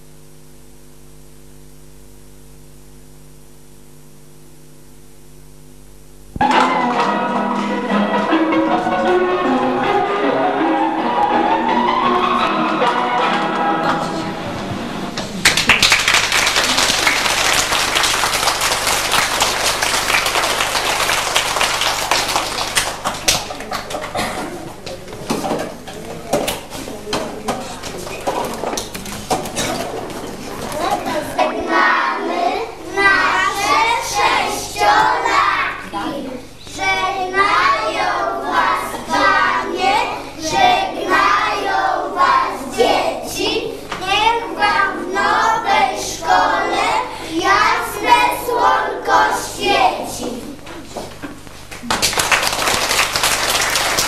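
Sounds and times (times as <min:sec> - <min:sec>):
audience clapping: 0:15.2 - 0:24.3, 0:51.6 - 0:54.0
children singing in chorus: 0:31.1 - 0:36.1, 0:36.7 - 0:50.3.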